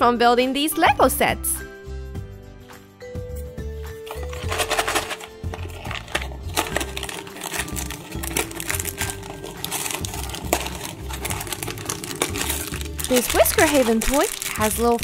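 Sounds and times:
cardboard box tearing: 0:04.1 - 0:14.6.

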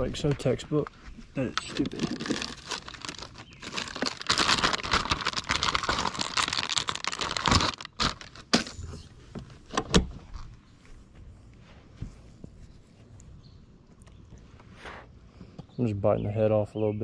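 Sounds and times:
plastic bag crinkling: 0:01.4 - 0:08.8.

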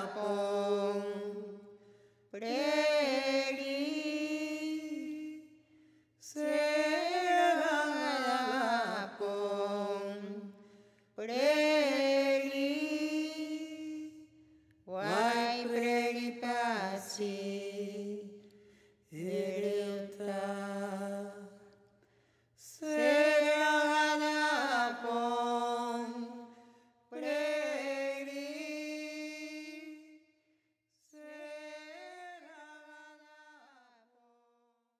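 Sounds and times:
person chanting: 0:00.0 - 0:01.8, 0:02.4 - 0:05.6, 0:06.2 - 0:18.4, 0:19.1 - 0:21.6, 0:22.6 - 0:30.2, 0:31.1 - 0:34.1.

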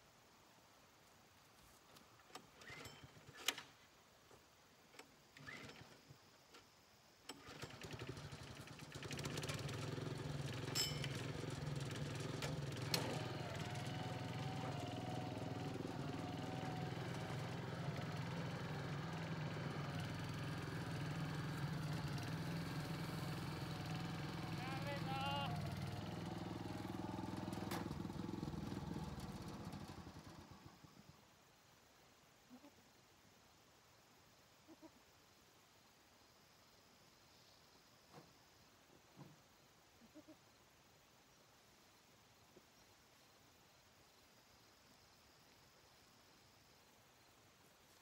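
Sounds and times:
engine starting and running: 0:02.3 - 0:03.8, 0:04.9 - 0:06.6, 0:07.3 - 0:31.1.

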